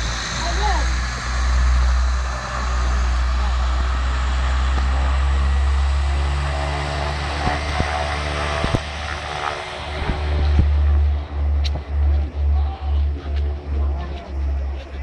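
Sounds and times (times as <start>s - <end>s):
steady humming tones: 0.0s - 15.0s
turboprop engines roaring: 0.0s - 15.0s.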